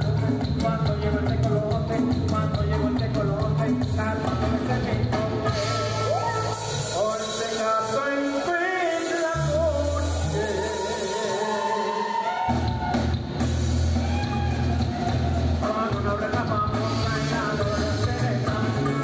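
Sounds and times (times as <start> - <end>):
live band playing upbeat tune: 0.0 - 19.0.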